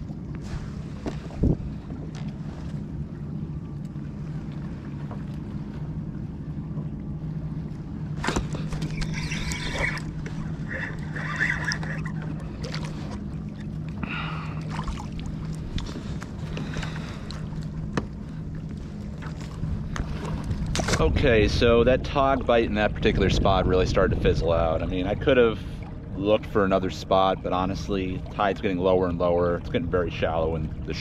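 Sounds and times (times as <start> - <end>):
electric trolling motor humming: 0.0 - 20.8
water sloshing against hull: 0.0 - 31.0.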